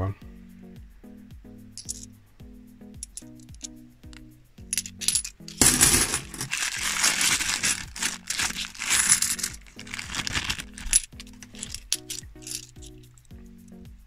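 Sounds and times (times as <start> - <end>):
coins clinking: 1.8 - 2.2, 3.0 - 3.8, 4.7 - 13.2
plastic bag crinkling: 5.0 - 12.7.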